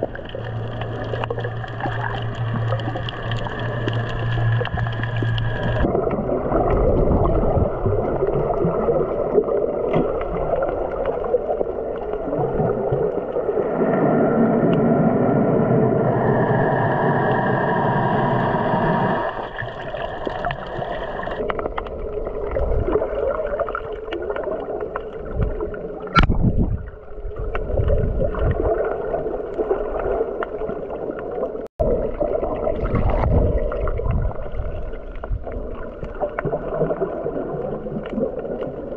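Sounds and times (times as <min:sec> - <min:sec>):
steady hum: 0:00.0 - 0:06.0, 0:13.6 - 0:21.4
muffled underwater rush: 0:00.0 - 0:38.9.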